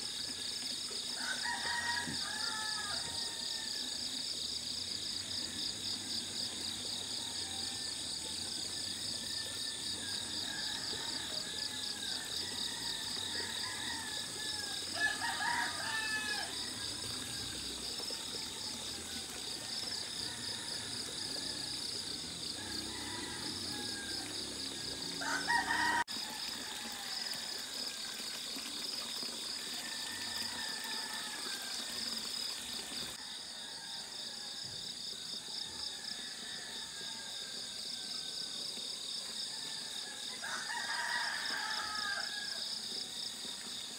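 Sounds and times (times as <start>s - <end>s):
rooster crowing: 1.2s - 3.9s, 10.3s - 17.3s, 19.9s - 27.5s, 29.7s - 31.8s, 39.4s - 42.7s.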